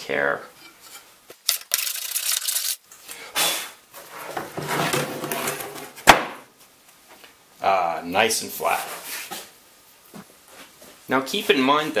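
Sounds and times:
block scraping wood: 4.0 - 6.1
sharp knock: 6.1 - 6.4.

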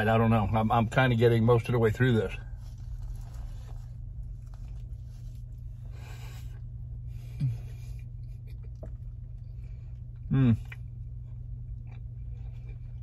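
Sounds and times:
low hum: 0.0 - 13.0
foil wrapper rustling: 2.0 - 5.6
person chewing: 2.5 - 13.0
person humming: 10.3 - 10.7.

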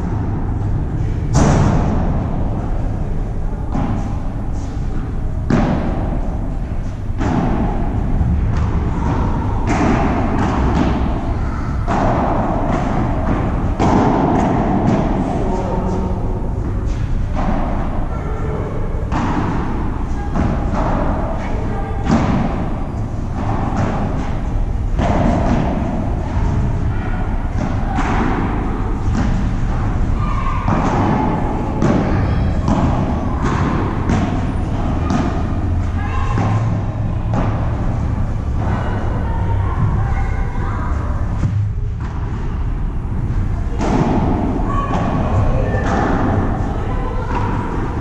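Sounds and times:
steady low rumble: 0.0 - 48.0
padel ball hit by rackets: 7.2 - 11.2, 11.9 - 15.2, 23.3 - 26.7, 30.6 - 38.8, 43.7 - 45.2.

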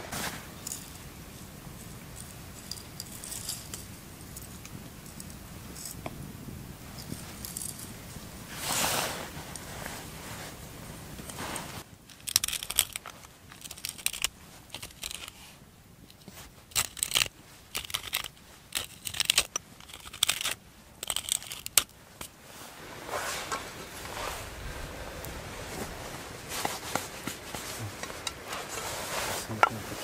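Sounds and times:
dry crinkling and crunching: 11.2 - 15.4, 16.1 - 22.4.

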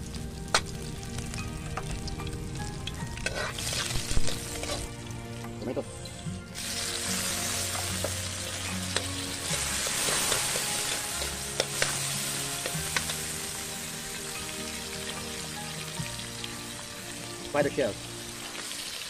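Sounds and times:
food sizzling in oil: 0.0 - 19.0
metal spatula scraping wok: 3.2 - 4.9, 6.6 - 13.5.

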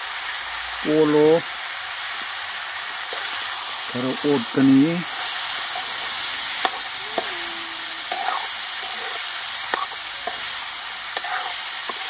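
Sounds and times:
meat sizzling in a pan: 0.0 - 12.0
metal spoon scraping pan: 5.6 - 7.4, 8.0 - 12.0.

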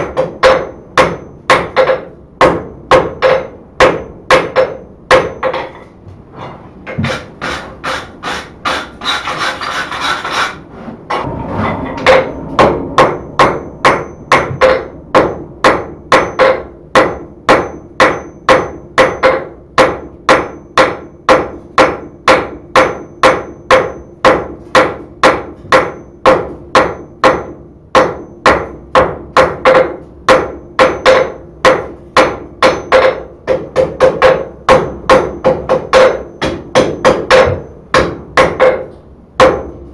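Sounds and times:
rasping scrape: 6.3 - 15.7
hammer ringing on anvil: 11.2 - 38.8.

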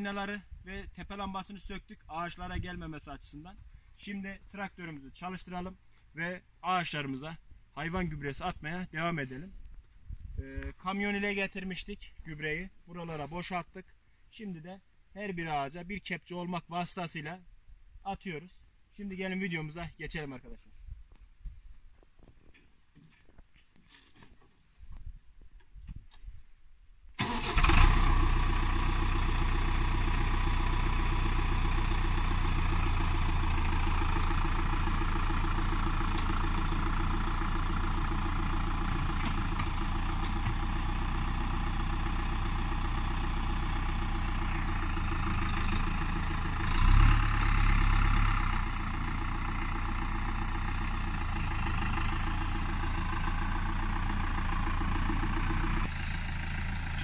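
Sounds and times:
tractor diesel engine running: 0.0 - 9.6, 27.2 - 57.0.

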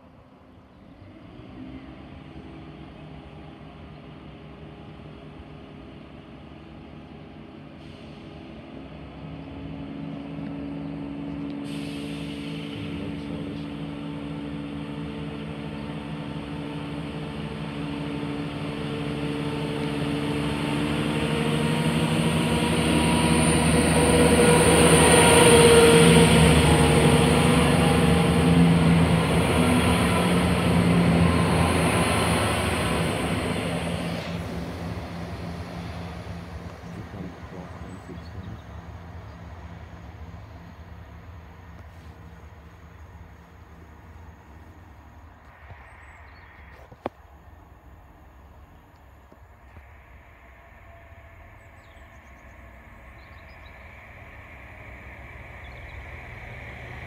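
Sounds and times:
diesel train passing: 0.0 - 57.0
high hiss from rails: 11.5 - 13.8.

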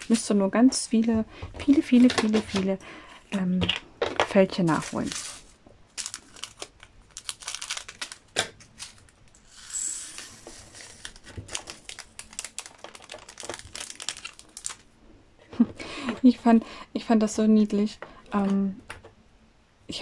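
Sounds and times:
plastic bag crinkling: 1.6 - 2.7, 4.3 - 14.9.

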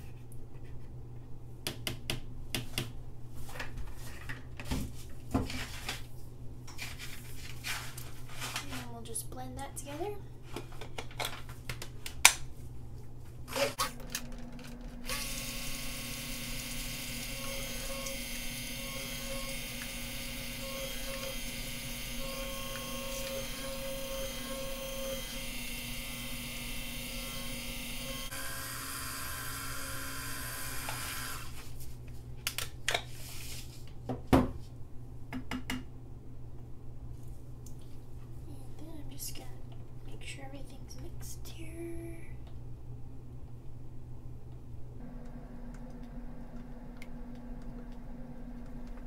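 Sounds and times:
stick blender humming: 13.5 - 31.6, 45.0 - 49.0.

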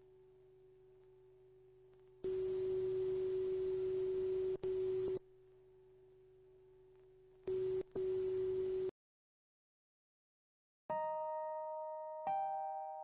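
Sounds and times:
tape hiss: 0.0 - 8.9.

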